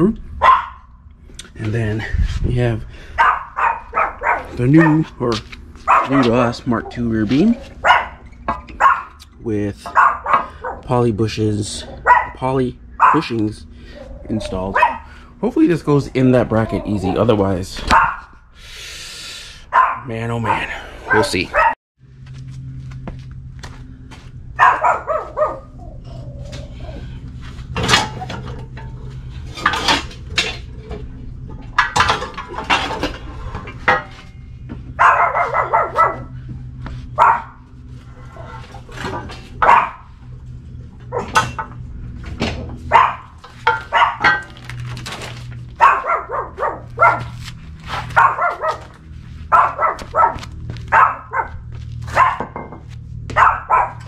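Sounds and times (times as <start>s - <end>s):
steady low hum: 0.0s - 54.0s
small dogs barking: 0.4s - 1.0s, 3.0s - 5.2s, 5.8s - 9.2s, 9.8s - 11.0s, 11.8s - 15.2s, 16.4s - 18.4s, 19.6s - 21.8s, 24.6s - 27.0s, 34.9s - 36.5s, 37.1s - 40.2s, 42.8s - 44.5s, 45.7s - 52.6s, 53.3s - 54.0s.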